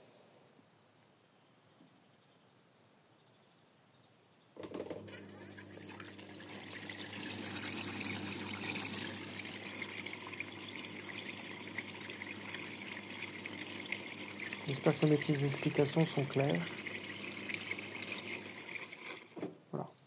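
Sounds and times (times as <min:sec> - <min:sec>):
washing machine humming: 0:04.6 - 0:20.0
water running and splashing: 0:05.1 - 0:20.0.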